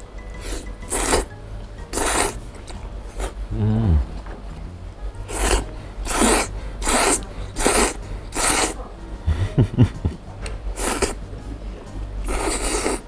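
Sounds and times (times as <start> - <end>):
person slurping noodles: 0.4 - 1.3, 1.9 - 2.4, 3.1 - 8.8, 10.8 - 11.2, 12.2 - 13.0
short low sounds: 3.4 - 5.9.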